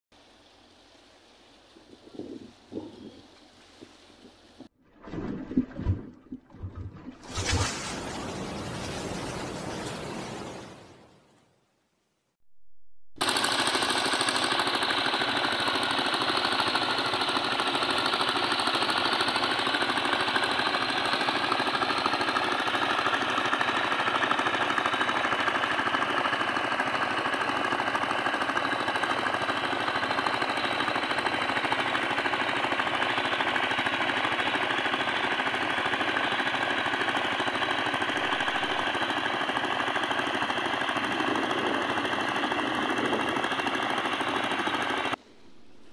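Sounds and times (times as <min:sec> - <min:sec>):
boat diesel engine knocking: 0:13.2 - 0:45.2.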